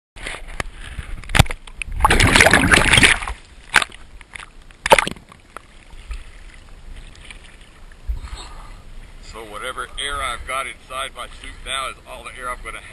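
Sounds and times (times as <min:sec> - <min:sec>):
water slapping against camera: 0:00.2 - 0:08.1
water splashing: 0:01.2 - 0:08.3.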